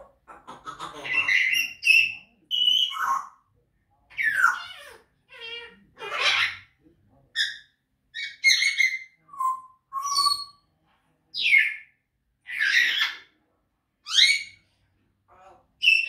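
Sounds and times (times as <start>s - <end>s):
parrots whistling and squawking: 0.2s - 3.4s, 4.1s - 6.8s, 7.4s - 10.6s, 11.4s - 13.3s, 14.1s - 14.6s, 15.4s - 16.0s.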